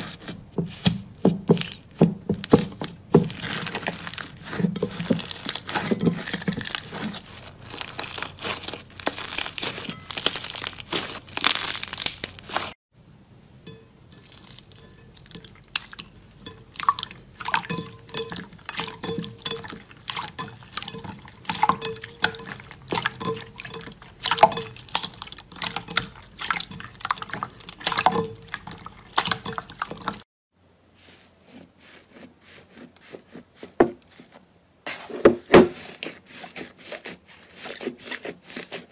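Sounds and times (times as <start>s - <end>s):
slime squelching: 0.0s - 12.8s, 14.1s - 30.2s
slime crackling and popping: 3.3s - 12.8s.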